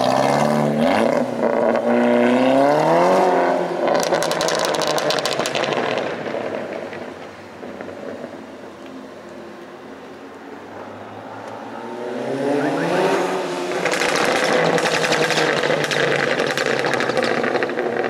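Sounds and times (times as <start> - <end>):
car engine revving: 0.0 - 8.4, 10.9 - 18.0
exhaust pops and crackles: 3.9 - 8.4, 13.7 - 18.0.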